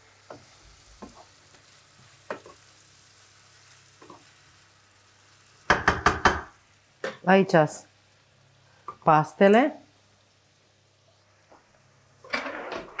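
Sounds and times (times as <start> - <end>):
faint sizzle: 0.0 - 13.0
wooden spoon scraping a pan: 0.3 - 1.5.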